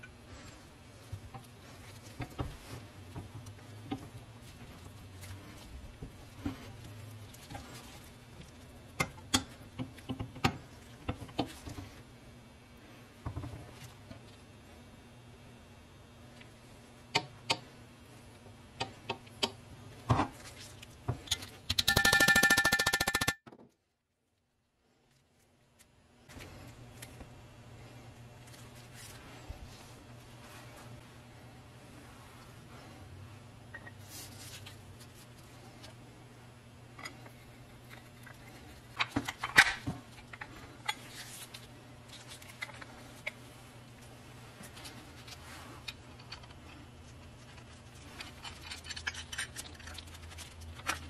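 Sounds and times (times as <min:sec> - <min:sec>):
fast rattling buzz with ringing tone: 0:21.8 - 0:23.4.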